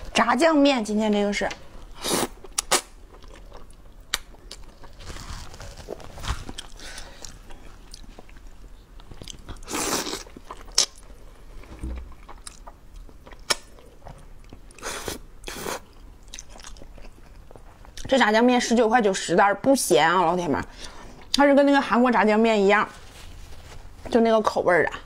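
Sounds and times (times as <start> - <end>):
chewing: 2.4 - 15.1, 15.8 - 18.1.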